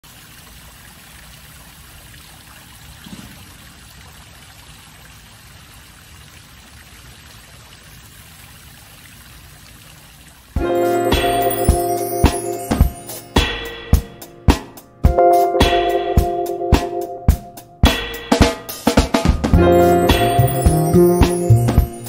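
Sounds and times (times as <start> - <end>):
fountain water splashing: 0.0 - 13.2
music: 10.6 - 22.0.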